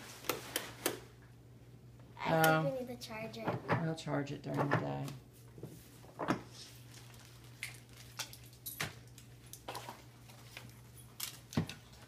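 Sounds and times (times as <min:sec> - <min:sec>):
toys and packaging being handled: 0:05.6 - 0:12.0.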